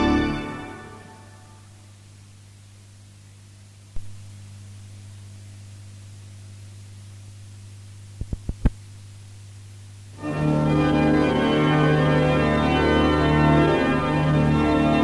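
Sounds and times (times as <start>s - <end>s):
organ playing sustained chords: 0.0s - 1.8s, 10.2s - 15.0s
low mains hum: 0.0s - 15.0s
tape hiss: 0.0s - 15.0s.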